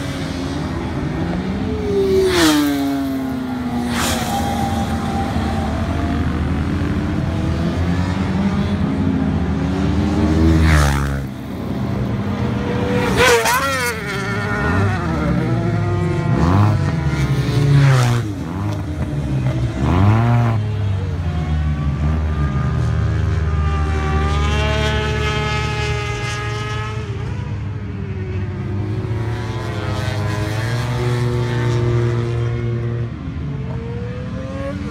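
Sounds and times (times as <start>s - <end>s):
scooters sweeping past: 0.0s - 27.3s
drone of racing engines: 0.0s - 34.9s.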